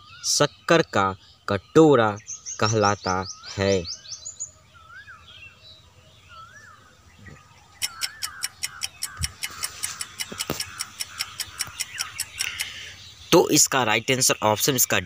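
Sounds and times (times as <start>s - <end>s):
fast clock-like ticking: 7.8s - 12.8s.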